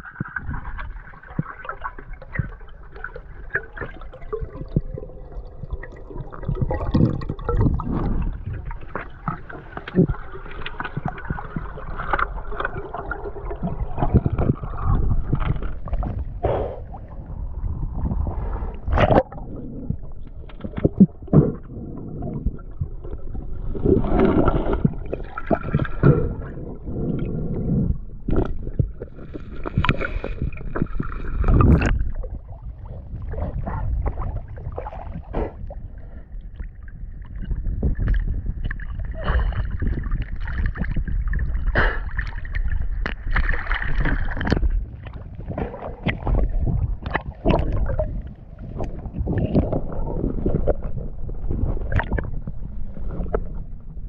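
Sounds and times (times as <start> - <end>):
water gurgling and sloshing: 0.0 - 54.0
low rumble: 13.5 - 54.0.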